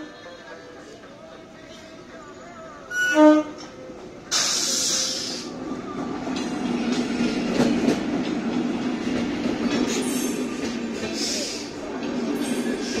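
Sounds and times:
train coaches rumbling: 0.0s - 13.0s
locomotive hissing rush: 3.7s - 13.0s
wheels clacking over rails: 5.9s - 11.2s.

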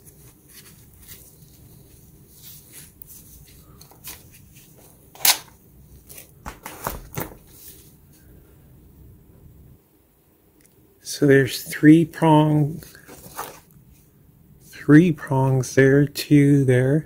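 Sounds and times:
gloved hands rustling: 0.0s - 8.3s, 12.7s - 14.1s.

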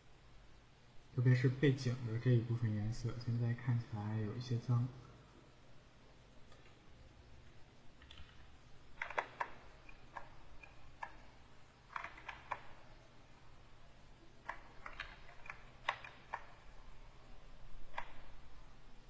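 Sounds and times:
keyboard and pen tablet clicking: 9.0s - 11.3s, 11.9s - 12.8s, 14.4s - 16.6s, 17.9s - 18.3s.

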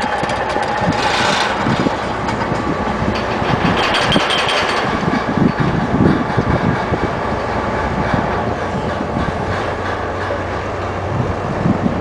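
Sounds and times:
vibratory hammer rattling: 0.0s - 7.2s.

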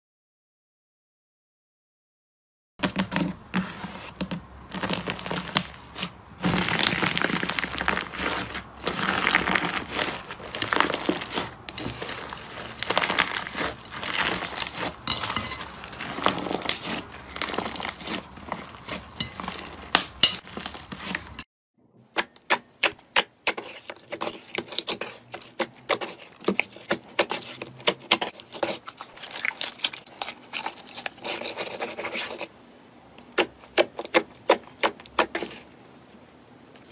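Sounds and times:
slime crackling and popping: 4.7s - 21.4s, 22.4s - 32.4s.

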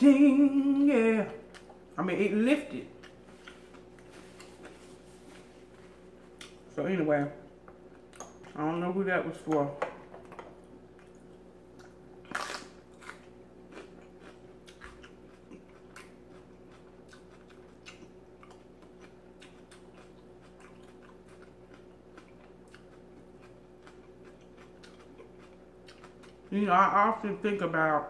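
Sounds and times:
wet chewing clicks: 11.0s - 26.5s
crunchy bite into food: 12.3s - 13.9s.

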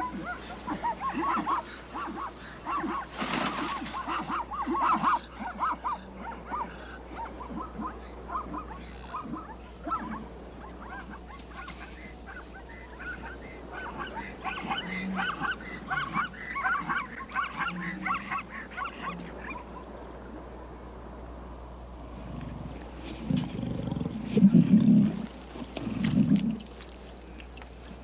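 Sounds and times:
zebras barking alarm calls: 0.0s - 19.9s.

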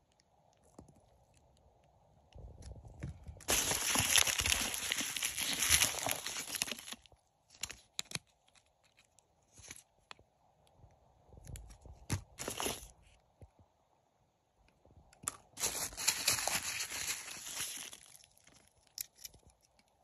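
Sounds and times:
packaging rustling and crinkling: 2.6s - 9.8s, 11.5s - 13.0s, 15.6s - 18.8s.

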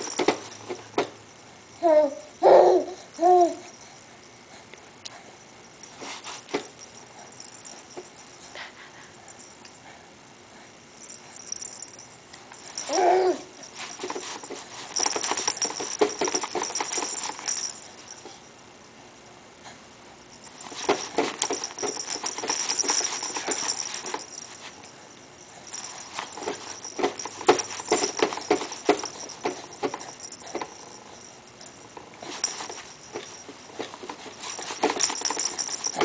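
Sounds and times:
toy ball rattling: 0.0s - 0.8s, 5.8s - 8.4s, 11.0s - 18.4s, 20.4s - 25.0s, 25.6s - 36.0s
baby vocal sound: 12.9s - 13.5s.

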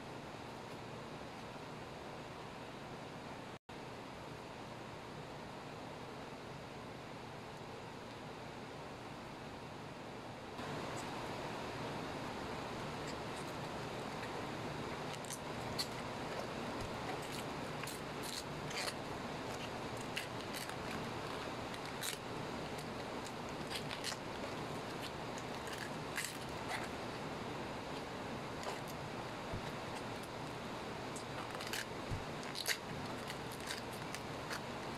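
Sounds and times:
steady hiss: 3.8s - 34.9s
cabbage leaves snapping and tearing: 15.0s - 27.0s, 31.2s - 34.9s.

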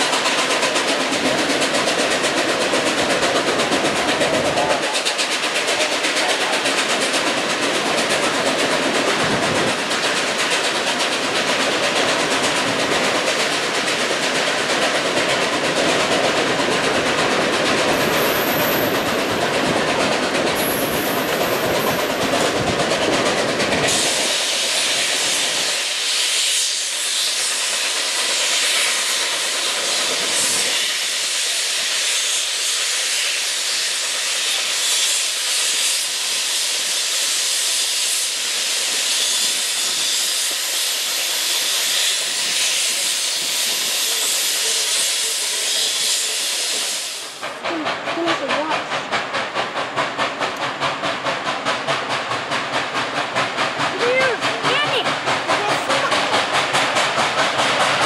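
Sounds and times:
steam exhaust and hiss: 0.0s - 58.0s
train wheels on rail: 0.0s - 58.0s.

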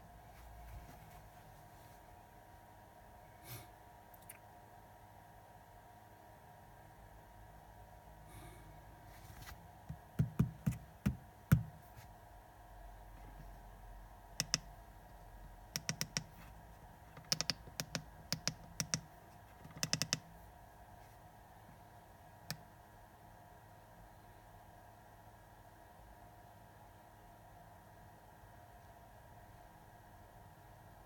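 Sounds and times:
keypad buttons clicking: 14.4s - 14.7s, 15.7s - 16.4s, 17.2s - 20.3s.

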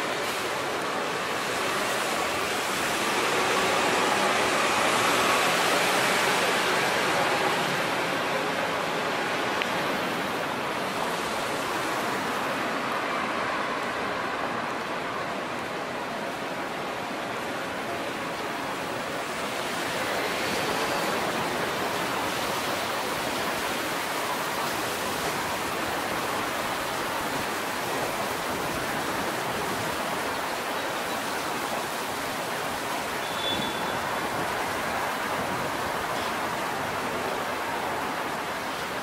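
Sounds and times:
traffic hiss: 0.0s - 39.0s
faint high chirp: 33.2s - 34.0s.

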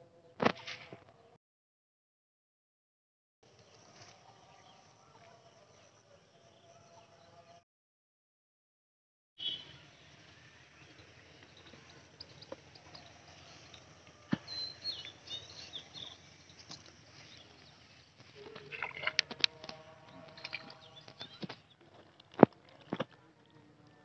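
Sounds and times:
water splashing: 18.4s - 19.4s.

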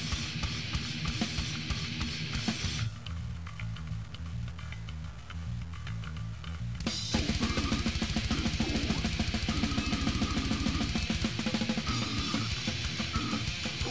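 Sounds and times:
fast rock drumming and guitar: 0.0s - 3.8s, 6.7s - 13.9s
bass riff: 0.0s - 13.9s.

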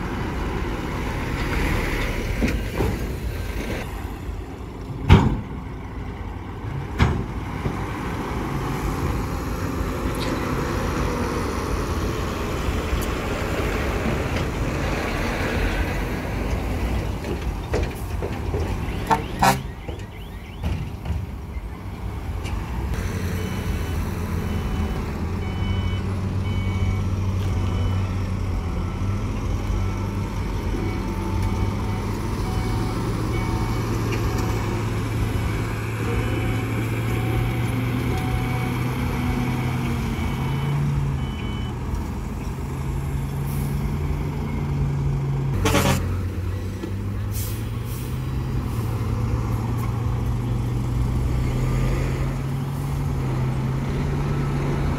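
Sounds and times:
diesel truck engines running: 0.0s - 54.9s
reversing alarm beeping: 23.3s - 34.6s, 35.4s - 41.8s
air brakes hissing: 47.2s - 49.0s.

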